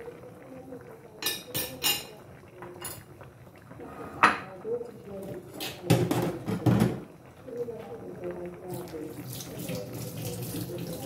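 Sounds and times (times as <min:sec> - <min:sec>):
dishes and utensils clinking: 0:01.2 - 0:03.1.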